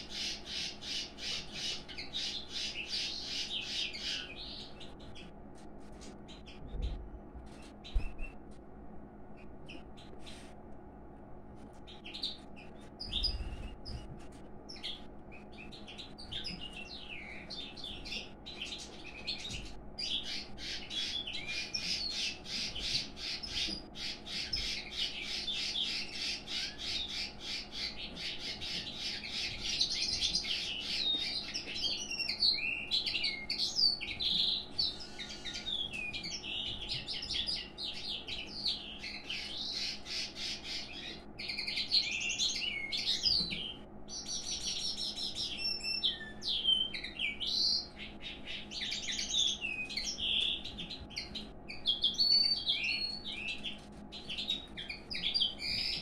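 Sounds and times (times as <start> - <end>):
birds chirping and warbling: 0.0 - 56.0.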